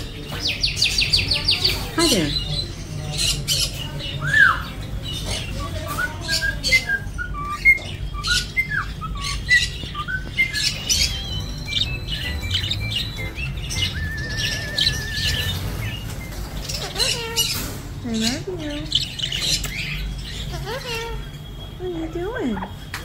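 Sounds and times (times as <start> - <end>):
budgerigars chattering: 0.0 - 22.8
warbled trill: 10.7 - 17.5.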